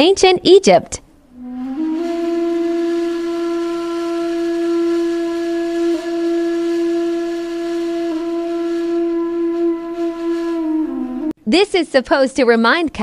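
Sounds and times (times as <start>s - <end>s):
woodwind holding long notes: 1.3s - 11.4s.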